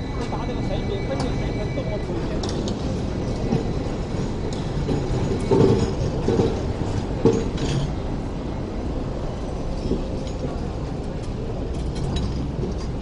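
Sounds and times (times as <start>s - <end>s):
tram wheels rumbling on rails: 0.0s - 13.0s
tram wheel clacks and knocks: 2.2s - 8.1s.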